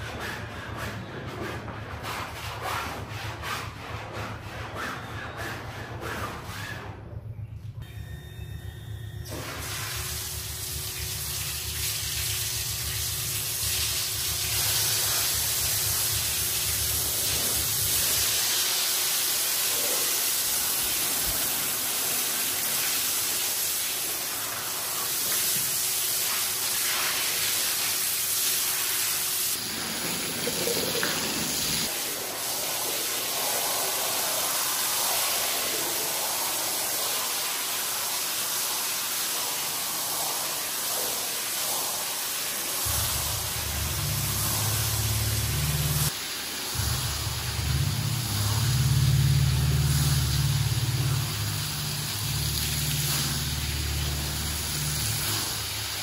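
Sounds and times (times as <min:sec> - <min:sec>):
water spraying onto rug: 0:09.3 - 0:56.0
low hum: 0:42.9 - 0:46.1, 0:46.8 - 0:55.3.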